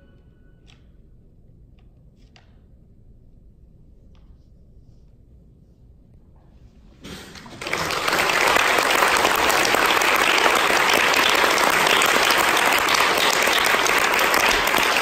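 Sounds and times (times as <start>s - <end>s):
audience applause: 7.3s - 15.0s.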